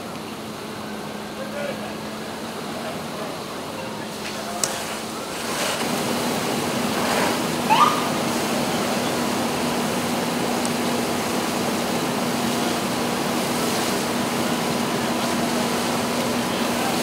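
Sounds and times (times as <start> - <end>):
fire hose spraying water: 0.0 - 17.0.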